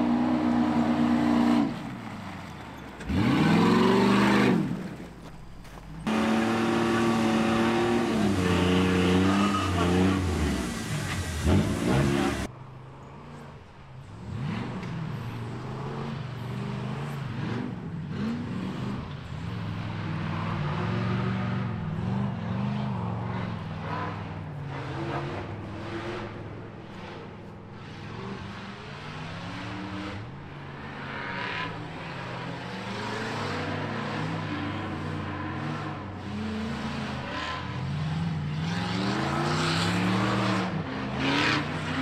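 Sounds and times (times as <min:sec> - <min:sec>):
buggy engine revving: 0:00.0 - 0:12.5, 0:14.1 - 0:42.0.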